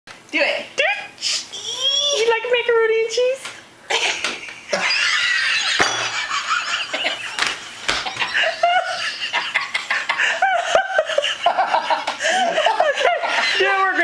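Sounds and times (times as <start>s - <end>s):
woman laughing hard: 3.9s - 7.4s, 8.0s - 13.9s
hand claps: 7.3s - 8.3s.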